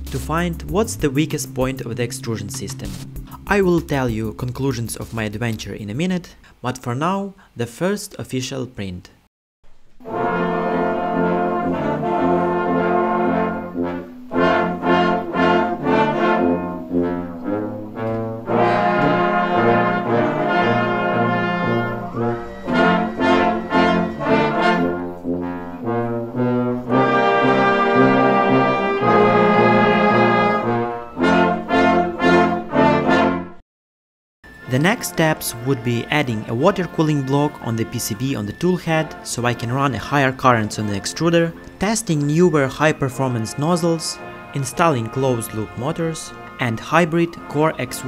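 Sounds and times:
brass background music: 0.0 - 6.0, 10.0 - 33.6, 34.4 - 48.0.

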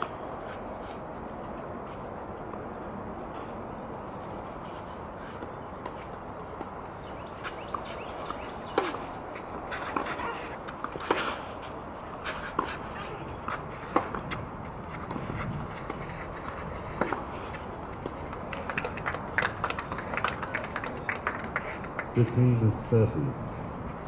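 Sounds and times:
racquets striking tennis ball: 4.8 - 22.2.

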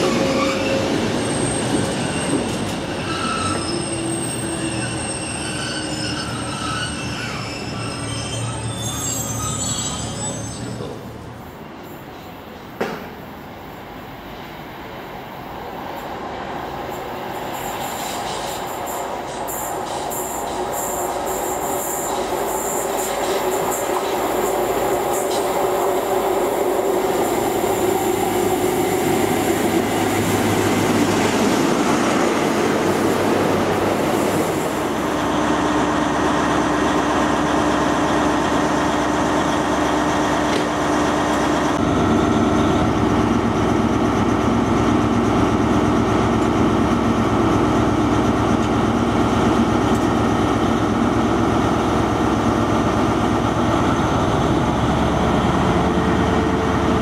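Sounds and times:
train diesel engine running: 15.4 - 57.0.

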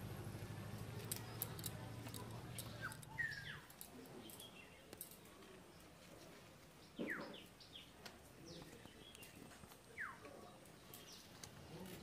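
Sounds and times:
bird chirping: 0.9 - 5.0, 6.7 - 12.0.

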